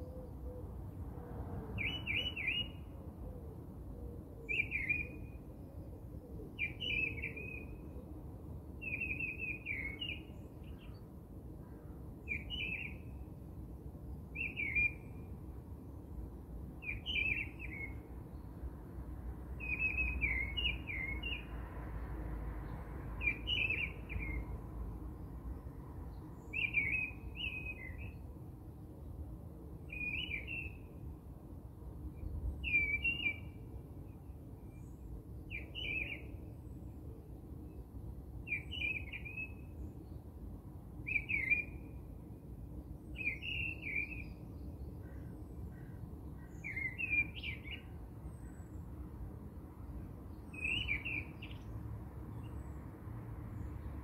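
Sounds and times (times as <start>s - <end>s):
bird chirping: 1.8s - 2.9s, 19.6s - 21.4s, 23.2s - 24.5s, 26.4s - 28.2s, 29.9s - 30.9s, 32.2s - 33.6s, 34.7s - 36.6s, 41.0s - 41.9s, 43.1s - 48.8s, 50.3s - 51.7s.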